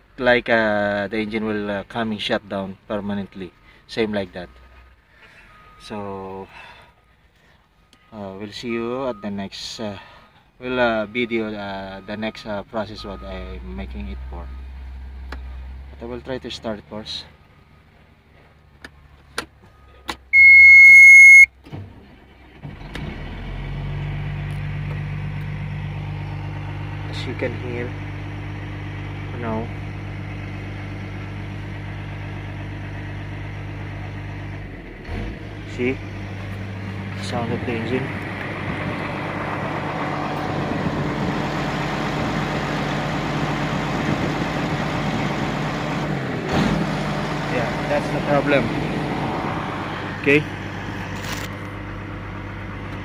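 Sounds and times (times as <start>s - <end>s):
diesel engine starting and running: 0.0s - 53.0s
electronic beep: 20.4s - 21.5s.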